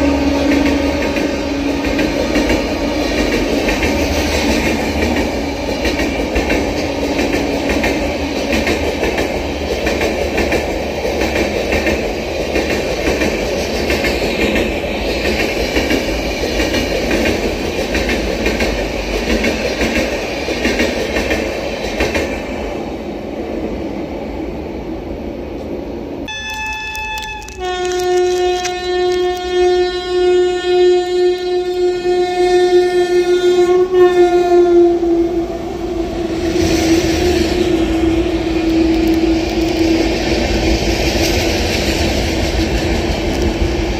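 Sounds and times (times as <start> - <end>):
train horn blasts: 0.0 - 3.2, 26.3 - 35.5
train rumble and wheel clatter: 0.0 - 43.9.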